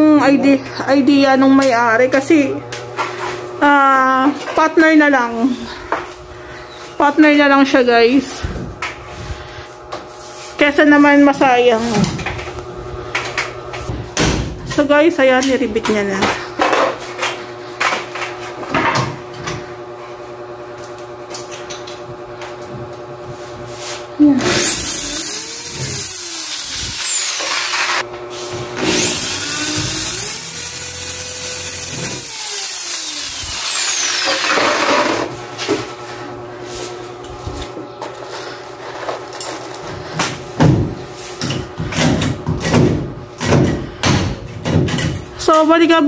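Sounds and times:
electric drill running: 24.4 - 28.1, 28.8 - 35.3
knocks and thuds of ceiling panel: 40.6 - 45.2.

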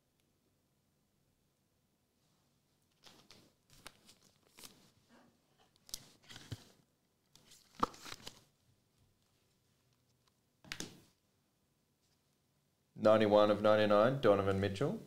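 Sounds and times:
trading cards rustling and clicking: 3.0 - 4.9, 7.4 - 8.5.

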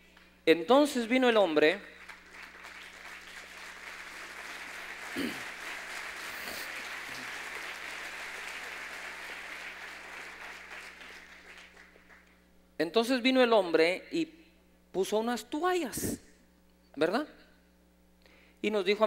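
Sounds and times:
audience applauding: 2.0 - 12.4.

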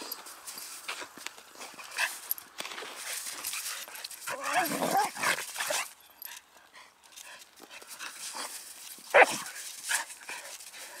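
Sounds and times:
dogs scuffling: 0.0 - 6.0
dog barking: 9.1 - 9.4.

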